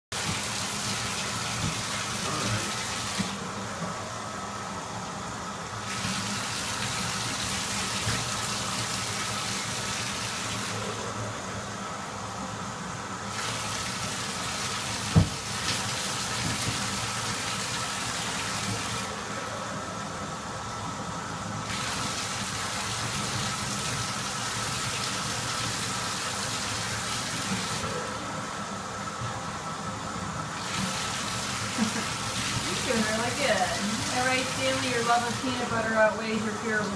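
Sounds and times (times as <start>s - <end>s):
water running: 0.0s - 36.9s.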